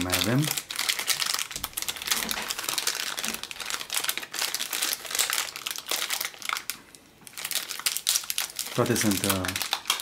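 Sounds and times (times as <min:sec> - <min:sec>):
plastic bag crinkling: 0:00.0 - 0:10.0.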